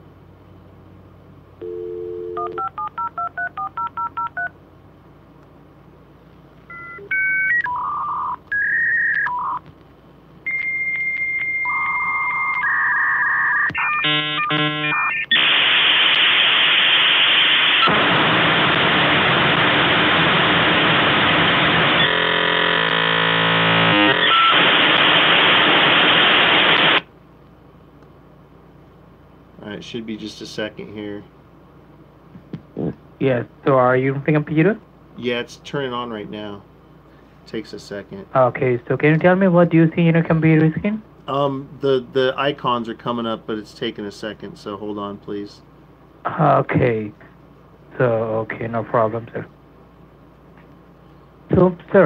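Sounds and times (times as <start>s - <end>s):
dial tone: 1.6s - 4.5s, 10.5s - 15.4s, 22.0s - 24.6s
touch-tone digits: 1.6s - 4.5s, 10.5s - 15.5s
modem handshake tones and chirps: 6.7s - 9.6s, 10.5s - 15.8s, 23.8s - 25.1s
loud hiss of noise: 15.3s - 27.1s.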